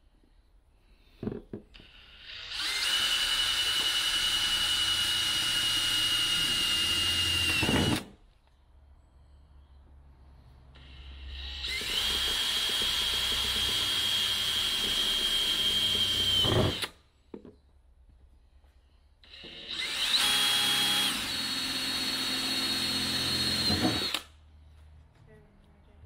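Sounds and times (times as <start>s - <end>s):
cordless drill whining: 1.8s - 8.2s, 10.8s - 17.0s, 19.2s - 24.4s.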